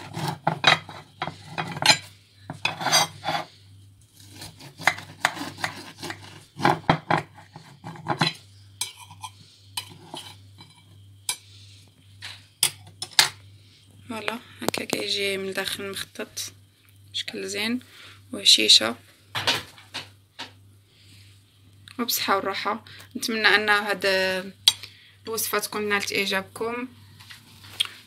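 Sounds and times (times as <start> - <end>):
knife scraping and clicking on plate: 0.0 - 3.5, 4.4 - 11.4.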